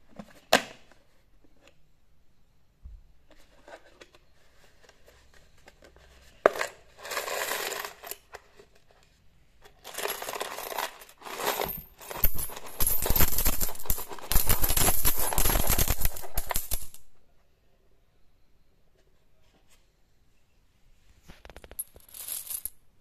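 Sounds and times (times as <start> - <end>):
coins clinking onto cloth: 6.6 - 8.3, 9.8 - 17.1, 21.4 - 22.8
coins rattling in coin bank: 6.6 - 8.3, 9.8 - 17.1, 21.6 - 22.7.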